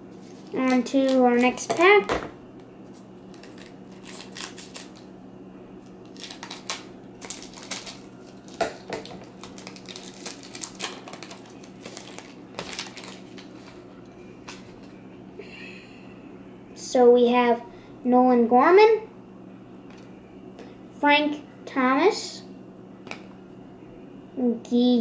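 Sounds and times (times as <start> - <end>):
faint low hum: 0.0 - 25.0
scissors snipping foil: 2.9 - 5.0, 6.1 - 13.8
wrapper crinkling: 2.9 - 5.1, 6.0 - 14.9.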